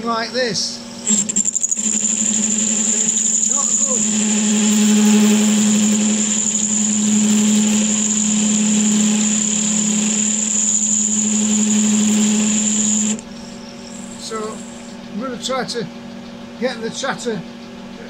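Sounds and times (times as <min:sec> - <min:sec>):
lathe tool chattering on metal: 0:01.0 - 0:13.4.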